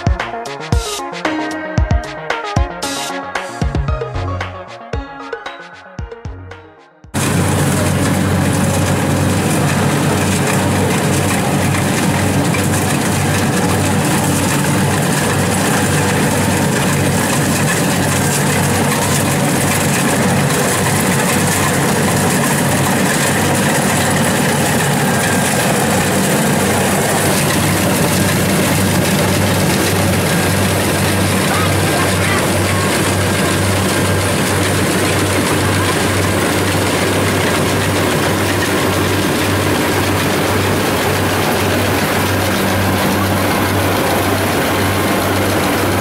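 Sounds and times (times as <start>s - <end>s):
electronic music: 0.0s - 7.2s
combine harvester engine drone: 7.1s - 46.0s.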